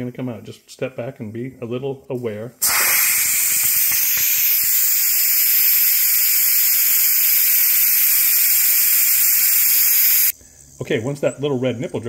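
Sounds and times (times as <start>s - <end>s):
steam hissing from pressure valve: 2.6s - 10.4s.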